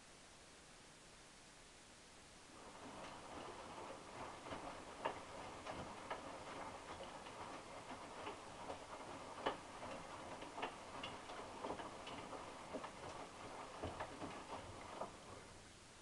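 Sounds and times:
washing machine swishing: 2.5s - 15.7s.

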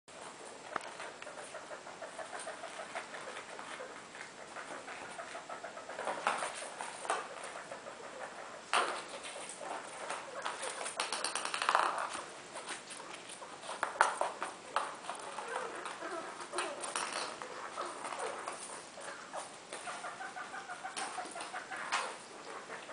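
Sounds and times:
rats scrabbling on carpet: 0.2s - 22.9s
plastic ball tapping: 11.0s - 12.2s.

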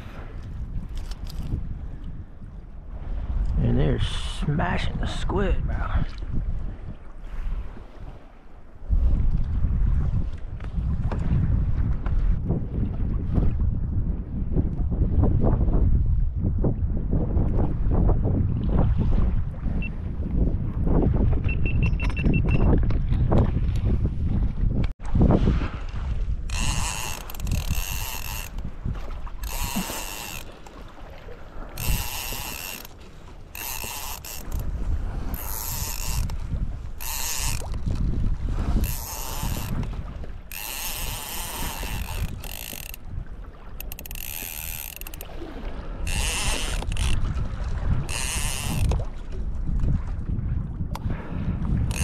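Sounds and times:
low wind rumble on microphone: 0.0s - 52.0s
fishing reel drag clicking: 0.9s - 1.6s, 26.5s - 28.7s, 29.3s - 30.8s, 31.7s - 38.2s, 38.8s - 43.2s, 43.8s - 45.4s, 46.0s - 47.3s, 48.0s - 49.0s.

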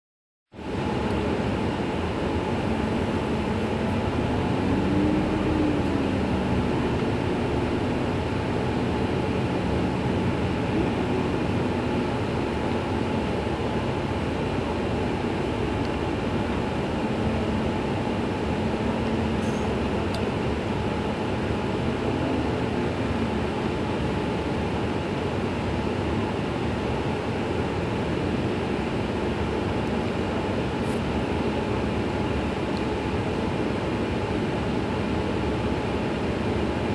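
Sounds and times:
faint whine: 0.6s - 24.5s
bus engine idling: 0.6s - 36.9s
pitched hum: 0.8s - 24.5s.

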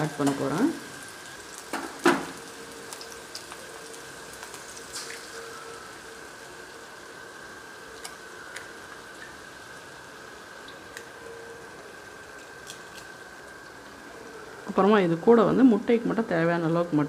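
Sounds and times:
eggs sizzling in oil: 0.0s - 17.0s
egg cracking on wok: 4.4s - 5.4s.

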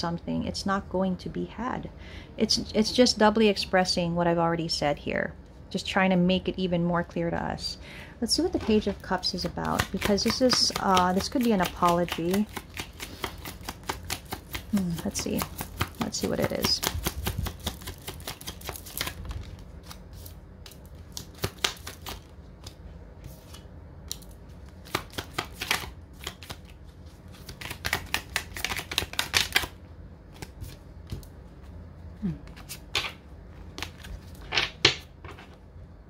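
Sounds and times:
cards being shuffled: 8.6s - 31.4s, 32.4s - 34.5s.

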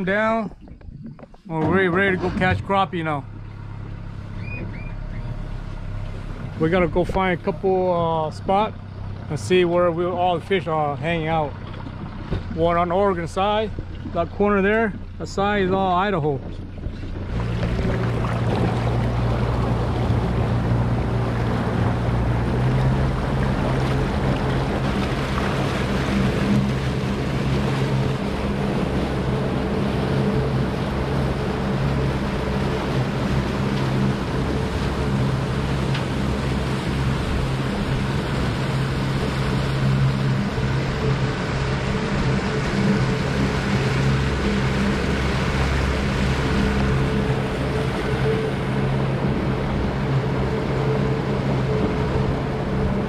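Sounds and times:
wind in microphone: 0.0s - 5.4s
outboard motor running: 0.0s - 53.0s
water splashing along hull: 0.0s - 53.0s.

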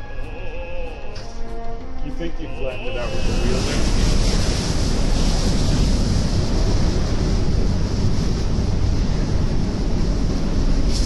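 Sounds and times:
wind buffeting microphone: 3.0s - 11.0s.

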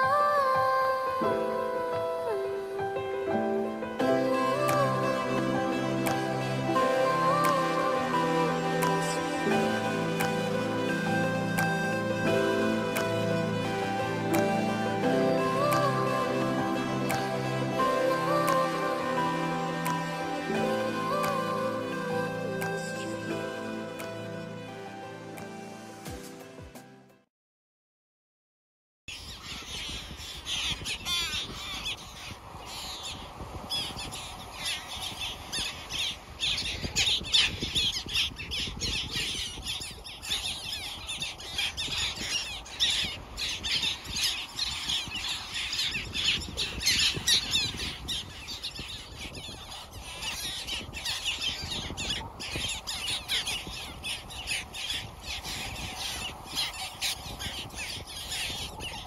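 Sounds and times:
seabirds squawking: 29.1s - 59.0s.

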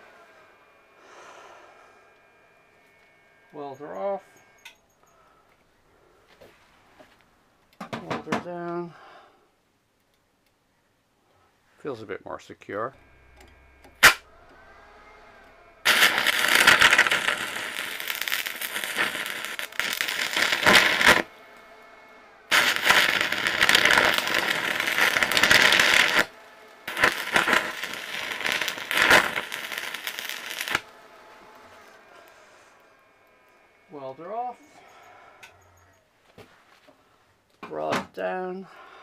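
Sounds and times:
welding arc crackling: 13.8s - 14.3s, 15.8s - 21.3s, 22.5s - 32.0s.

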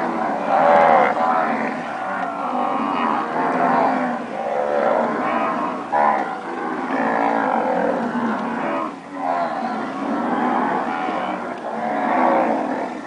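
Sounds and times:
cows mooing: 0.0s - 13.0s.

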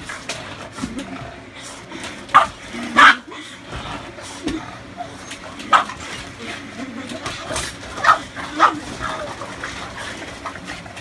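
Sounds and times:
dog barking: 2.3s - 3.2s, 5.7s - 6.0s, 8.0s - 8.8s.

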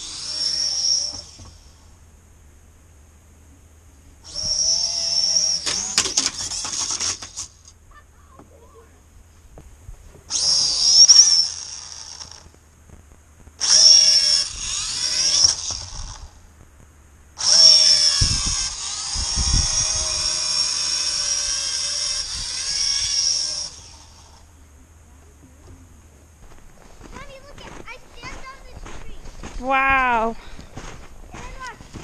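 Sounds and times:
drone propellers whining: 0.0s - 2.0s, 4.2s - 9.0s, 10.3s - 12.6s, 13.6s - 16.4s, 17.4s - 24.7s.

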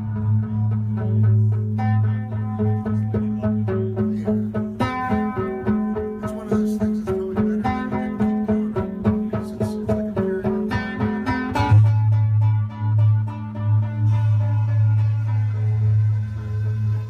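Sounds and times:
guitar picking single notes: 0.0s - 17.0s
low drone: 11.7s - 17.0s.

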